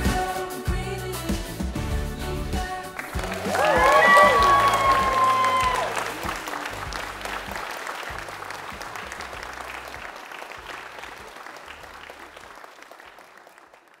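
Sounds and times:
crowd applauding: 0:02.9 - 0:14.0.

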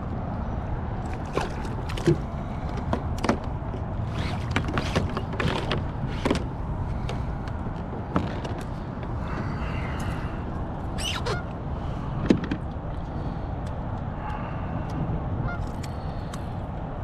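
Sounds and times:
low background rumble: 0:00.0 - 0:17.0
clicks and knocks on plastic kayak: 0:01.3 - 0:08.8.

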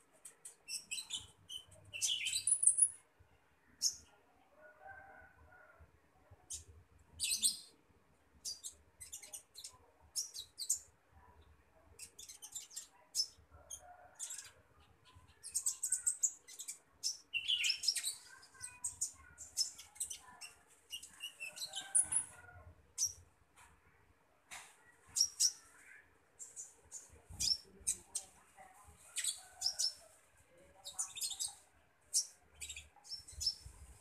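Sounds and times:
bird chirping: 0:00.2 - 0:03.0, 0:14.2 - 0:22.4.

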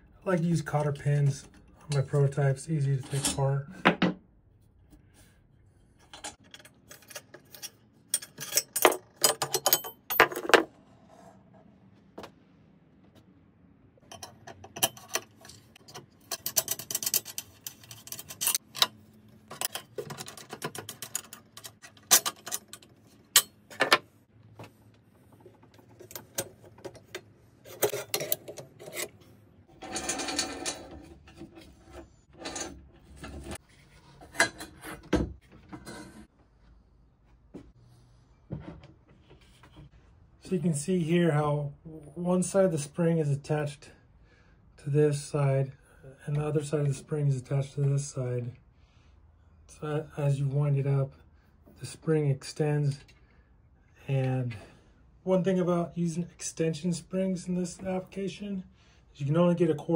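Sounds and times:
metal parts clinking: 0:06.1 - 0:10.7, 0:14.1 - 0:24.0.

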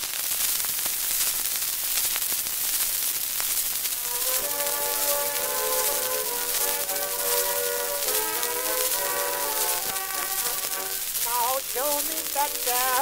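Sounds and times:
record surface hiss and crackle: 0:00.0 - 0:13.0
instrumental music sustained notes: 0:04.0 - 0:11.2.

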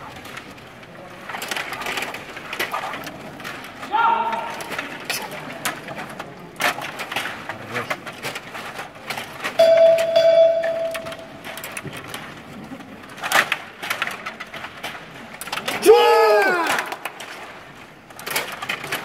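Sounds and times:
plastic clicks of table hockey game: 0:00.0 - 0:19.0
steady held tone: 0:09.6 - 0:11.5.

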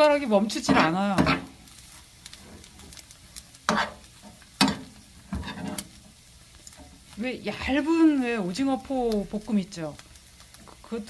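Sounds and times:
soft sizzle in frying pan: 0:00.0 - 0:11.0
metal spoon scraping pan: 0:00.6 - 0:01.5, 0:03.6 - 0:06.0.

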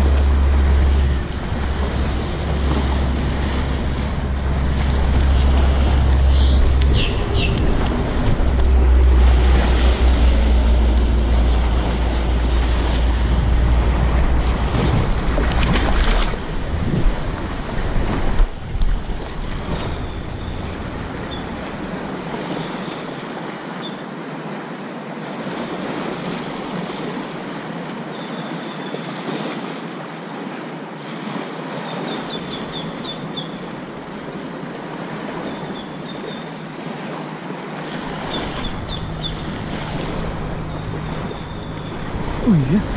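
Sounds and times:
wind rumbling on microphone: 0:00.0 - 0:22.5
small waves washing on beach: 0:00.0 - 0:42.9.

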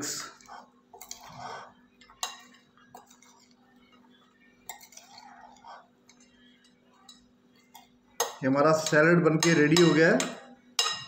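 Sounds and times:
pasta salad scraping rustle: 0:00.2 - 0:01.8
metal spoons clinking on glass: 0:02.0 - 0:03.6, 0:04.6 - 0:11.0.

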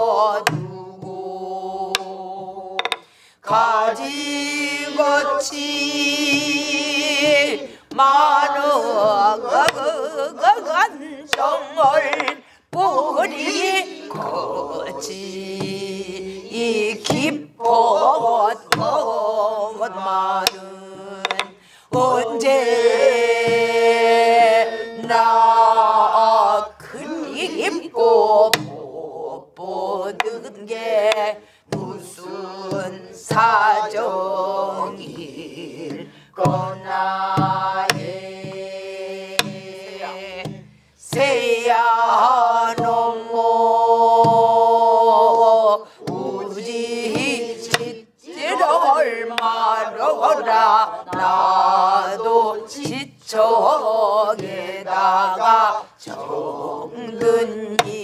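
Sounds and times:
group of voices singing: 0:00.0 - 0:58.0
woman singing folk song: 0:00.0 - 0:58.0
barrel drum strokes: 0:11.3 - 0:28.9, 0:29.5 - 0:58.0.

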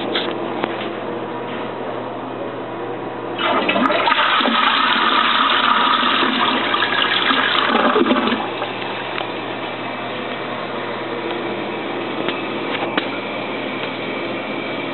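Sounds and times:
steady background hum: 0:00.0 - 0:14.9
toilet flushing: 0:03.4 - 0:08.8.

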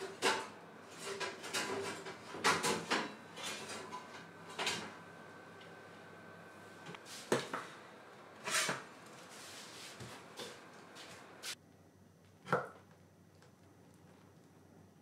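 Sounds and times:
metal tin scraping on oven tray: 0:08.4 - 0:08.9.

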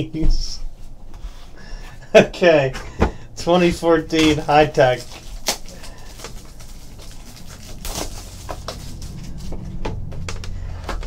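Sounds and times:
steady low hum: 0:00.0 - 0:11.0
plastic wrap crinkling: 0:03.6 - 0:10.6.

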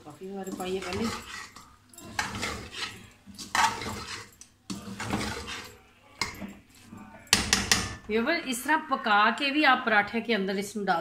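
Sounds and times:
metal spoon scraping metal pot: 0:00.2 - 0:06.6.

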